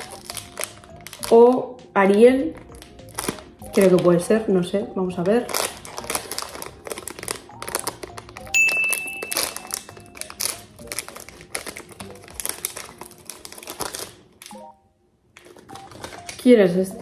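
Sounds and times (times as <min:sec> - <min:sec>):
foil wrapper crinkling and tearing: 0:00.0 - 0:01.6, 0:02.4 - 0:04.5, 0:05.1 - 0:14.6, 0:15.3 - 0:17.0
quiet background music: 0:00.0 - 0:17.0
high ringing tone: 0:08.6 - 0:10.1.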